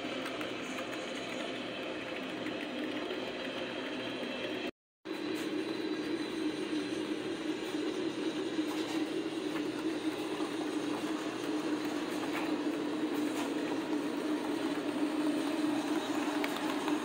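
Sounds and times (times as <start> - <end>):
model train motors humming: 5.6 - 17.0
wheels rolling on track: 8.4 - 17.0.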